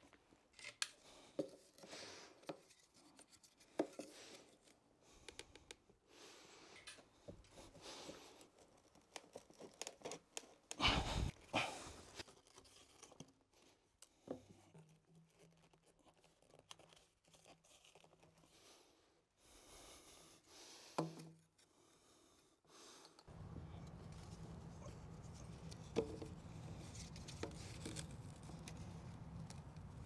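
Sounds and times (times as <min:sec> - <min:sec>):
plastic pipe handling noises: 0:00.0 - 0:05.8, 0:21.0 - 0:21.6, 0:23.1 - 0:29.9.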